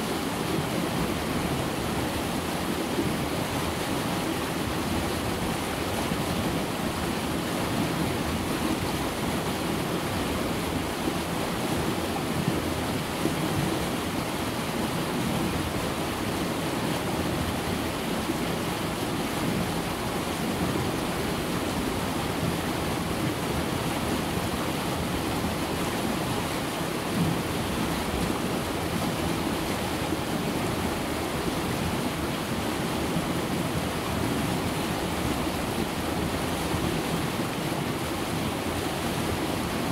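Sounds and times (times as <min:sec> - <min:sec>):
river rapids rushing: 0:00.0 - 0:39.9.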